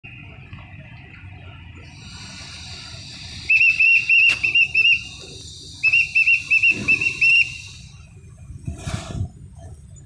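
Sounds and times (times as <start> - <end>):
steady low rumble: 0.0 - 10.0
shrill whistle short notes: 3.5 - 5.1, 5.8 - 7.9.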